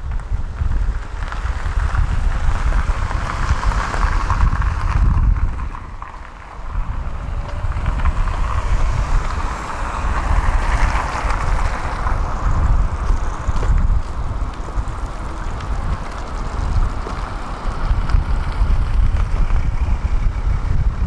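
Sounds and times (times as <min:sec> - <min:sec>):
steady outdoor noise: 0:00.0 - 0:21.0
wind buffeting microphone: 0:00.0 - 0:21.0.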